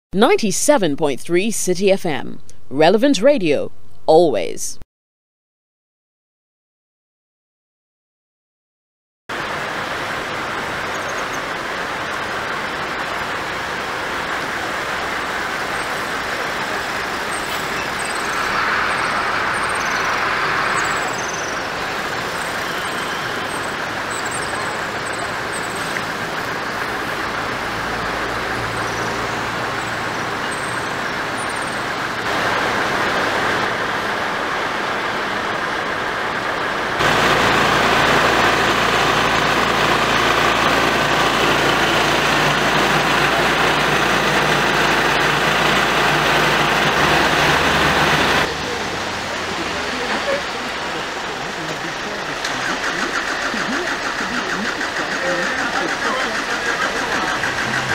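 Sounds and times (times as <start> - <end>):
floodwater rushing: 9.3 - 57.9
high bird chirps: 17.2 - 26.1, 28.6 - 31.9.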